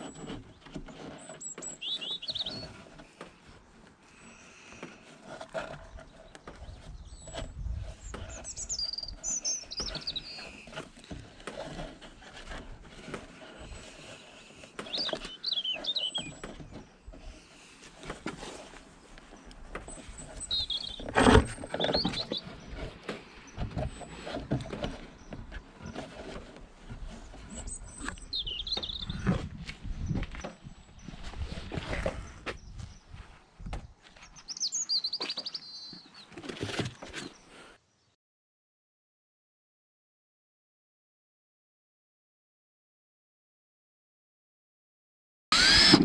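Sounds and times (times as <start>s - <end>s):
small birds twittering: 0.0s - 3.1s, 5.8s - 11.4s, 13.7s - 26.4s, 27.1s - 38.2s
rope rustling through wood: 0.0s - 34.4s.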